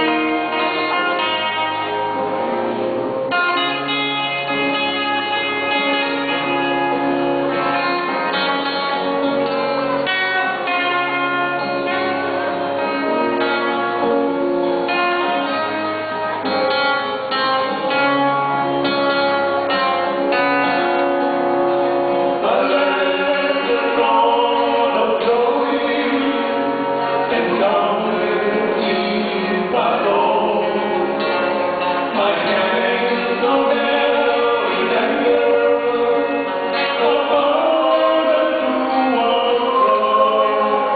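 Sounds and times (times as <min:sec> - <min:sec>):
bass line: 0:00.0 - 0:40.9
lead guitar: 0:00.0 - 0:40.9
people singing gospel duet: 0:22.2 - 0:40.9.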